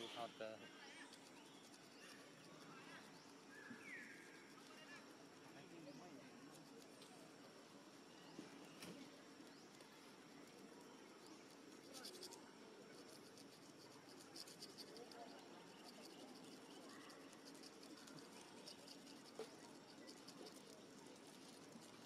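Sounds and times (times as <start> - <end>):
high-pitched insect chirping: 11.2 - 22.0.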